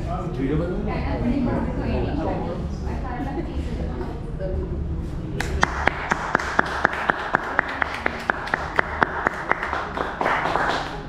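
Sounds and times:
group clapping in rhythm: 5.4 - 11.0.

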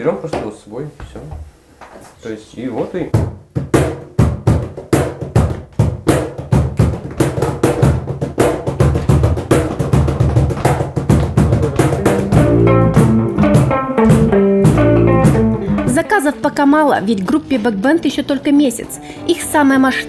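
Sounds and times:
cajon slaps and bass strokes: 3.1 - 16.3
guitar notes: 11.6 - 20.0.

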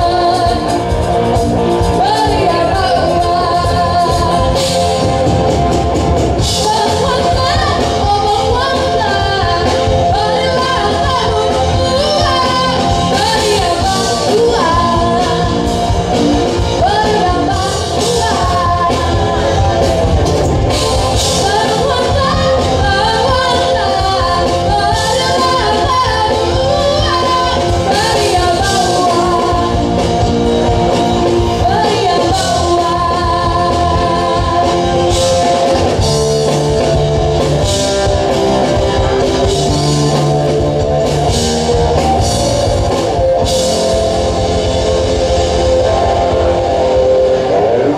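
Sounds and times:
woman singing: 0.0 - 5.2, 6.4 - 30.1, 31.0 - 36.1
drums: 0.0 - 47.9
electric bass guitar: 0.0 - 47.9.

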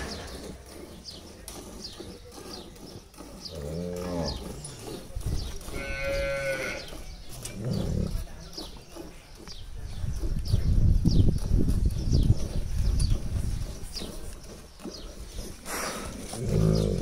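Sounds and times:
cattle mooing: 5.7 - 6.9.

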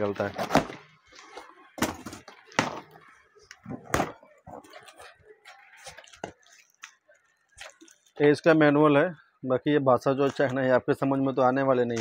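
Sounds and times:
rustling cardboard and plastic wrapping: 0.0 - 8.2.

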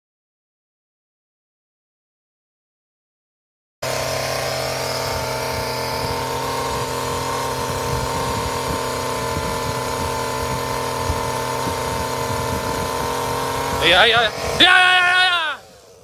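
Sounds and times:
engine humming steadily: 3.8 - 16.0.

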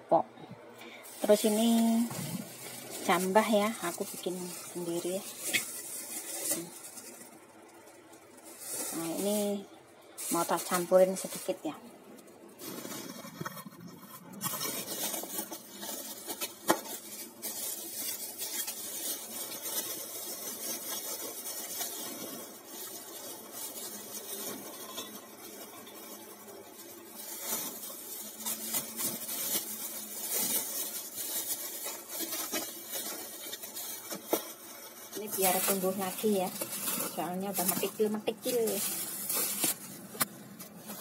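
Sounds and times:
plastic bag crinkling: 0.8 - 41.0.

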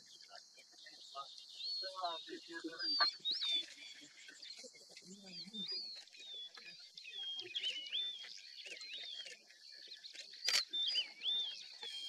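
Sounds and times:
birds singing whistled phrases: 0.0 - 12.0.

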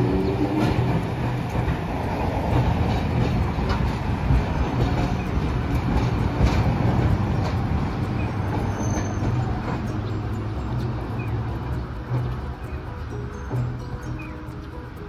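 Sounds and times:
rail clicks: 0.0 - 15.0
streetcar rumbling on rails: 0.0 - 15.0.

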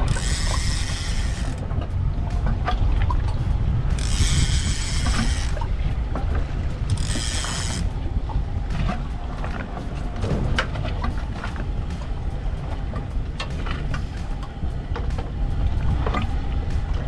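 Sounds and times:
fishing reel drag buzzing: 0.0 - 1.6, 4.0 - 5.6, 6.9 - 7.9
wind rumbling on microphone: 0.0 - 17.0.

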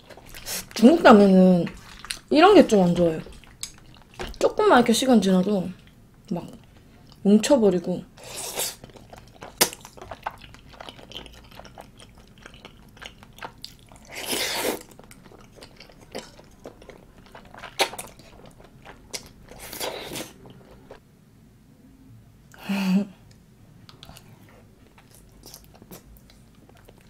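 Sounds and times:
wet chewing mouth sounds: 1.6 - 4.5, 8.2 - 21.0, 23.9 - 27.0.

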